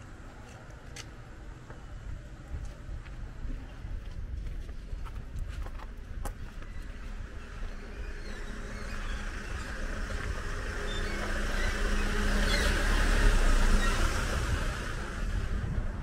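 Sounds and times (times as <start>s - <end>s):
vehicle passing close by: 8.6s - 16.0s.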